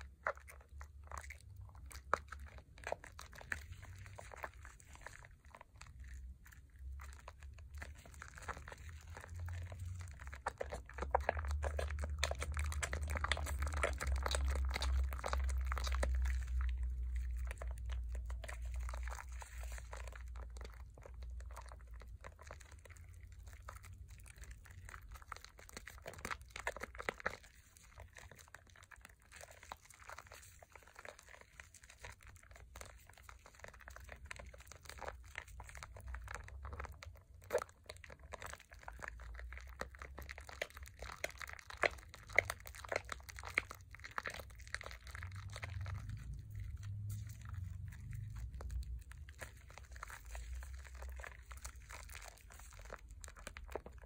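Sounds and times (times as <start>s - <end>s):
squishing soap lather: 0.0s - 54.0s
low rumble: 44.2s - 54.0s.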